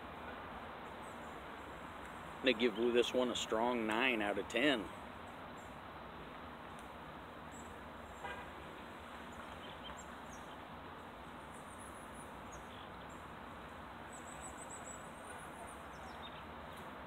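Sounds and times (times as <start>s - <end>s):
faint steady hiss: 0.0s - 17.0s
small birds chirping: 9.2s - 13.3s, 14.0s - 16.9s.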